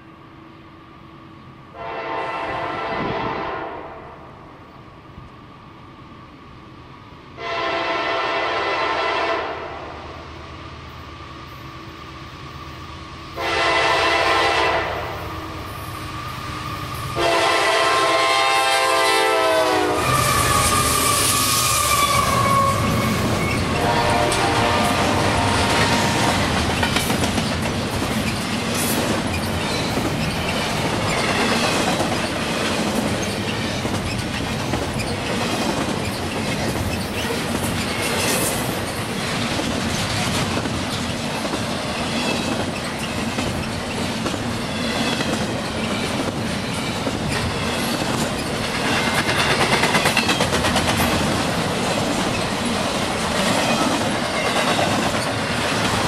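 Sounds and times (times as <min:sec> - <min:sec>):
freight train rumbling past: 0:00.0 - 0:56.0
wheels clattering over rail joints: 0:26.3 - 0:56.0.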